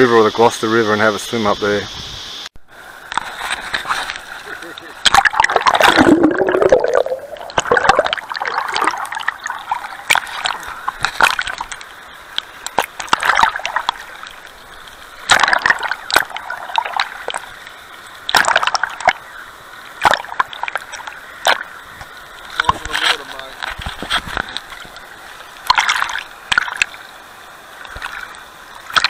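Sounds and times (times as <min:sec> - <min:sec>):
river water splashing: 0:02.8 - 0:29.0
water rushing: 0:02.8 - 0:29.0
plunge and bubbling: 0:05.0 - 0:11.8, 0:12.6 - 0:14.0, 0:15.2 - 0:17.5, 0:18.3 - 0:19.2, 0:20.0 - 0:21.7.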